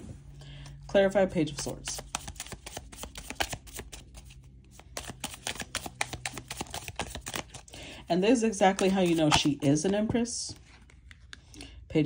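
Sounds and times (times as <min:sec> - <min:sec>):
cards being shuffled: 0:01.5 - 0:07.7, 0:08.4 - 0:11.4.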